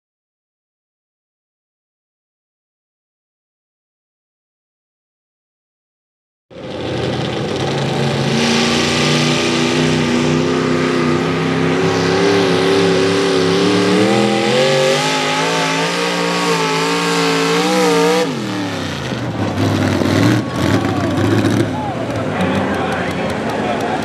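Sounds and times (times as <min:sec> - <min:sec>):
tractor engine at full throttle: 0:06.5 - 0:24.0.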